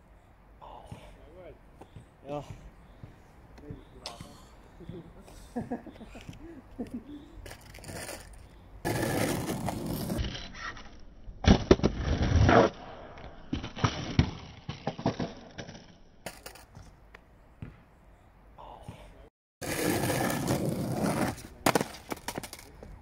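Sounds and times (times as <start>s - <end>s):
skateboard wheels rolling on asphalt: 5.6s - 17.2s, 19.6s - 23.0s
skateboard clattering on pavement: 19.6s - 23.0s
skateboard tail popping: 19.6s - 23.0s.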